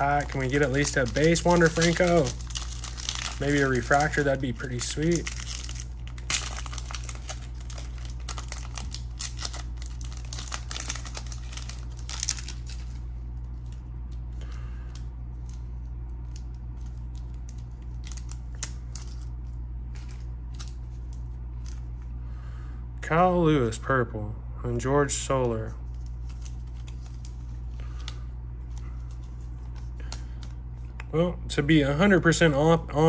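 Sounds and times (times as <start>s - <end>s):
foil wrapper crinkling: 0.0s - 15.6s, 16.2s - 22.0s, 25.8s - 30.6s
cards rustling: 0.0s - 22.0s, 25.8s - 31.0s
steady low hum: 0.0s - 33.0s.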